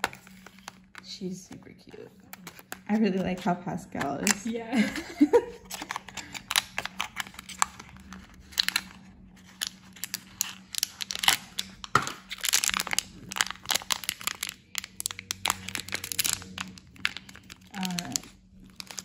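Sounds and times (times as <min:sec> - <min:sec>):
foil pouch tearing and crinkling: 0:00.0 - 0:01.0, 0:05.6 - 0:19.0.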